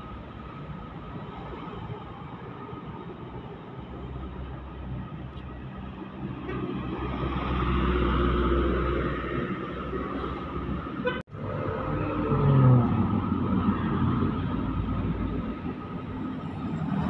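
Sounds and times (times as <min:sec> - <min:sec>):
street traffic: 0:00.0 - 0:17.0
diesel truck engine passing: 0:05.8 - 0:17.0.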